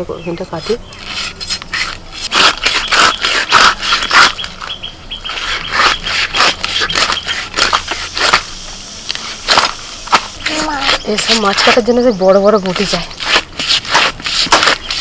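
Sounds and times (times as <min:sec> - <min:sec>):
fish scraping against blade: 0:00.5 - 0:04.7, 0:05.3 - 0:08.5, 0:12.8 - 0:15.0
fish scales crackling: 0:00.7 - 0:15.0.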